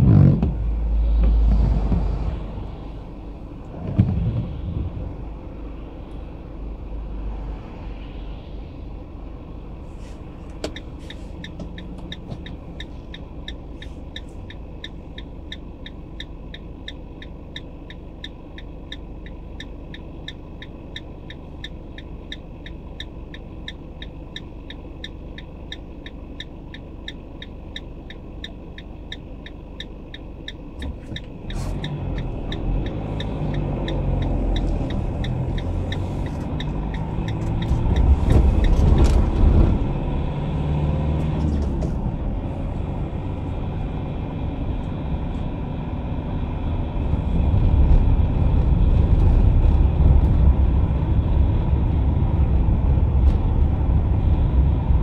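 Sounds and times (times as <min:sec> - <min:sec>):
car engine rumble: 0:00.0 - 0:55.0
passing traffic: 0:00.0 - 0:55.0
turn signal ticking: 0:10.4 - 0:41.8.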